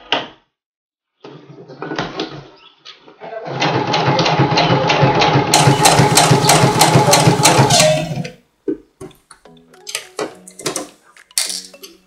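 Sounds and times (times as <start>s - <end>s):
sewing machine stitching: 3.5s - 8.2s.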